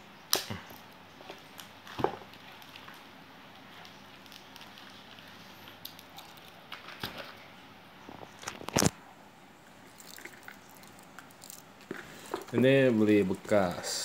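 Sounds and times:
plastic wrapping crackling: 9.9s - 12.6s.

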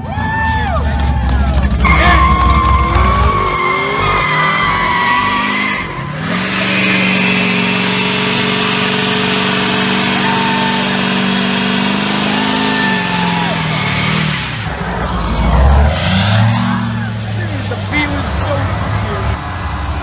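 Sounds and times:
tire squeal: 0.0s - 18.6s
truck engine at high revs: 0.0s - 20.0s.

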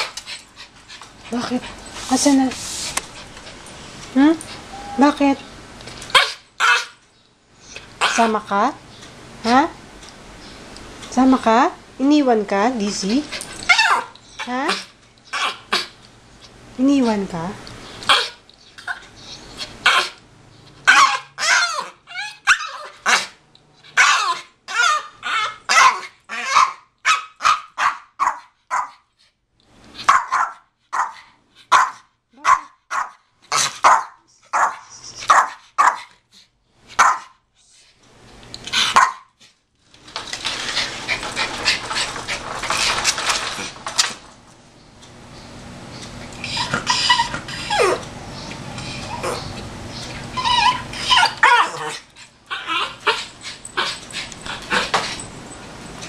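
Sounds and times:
small dog barking and yelping: 6.1s - 7.0s, 13.6s - 15.9s, 18.1s - 20.2s, 20.8s - 29.1s, 30.0s - 36.2s, 37.0s - 37.4s, 38.9s - 39.4s, 46.5s - 48.1s, 48.9s - 49.6s, 50.2s - 55.0s.

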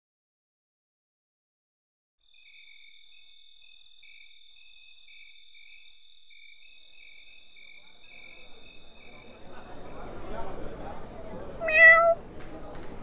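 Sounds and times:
crickets chirping: 2.2s - 10.9s.

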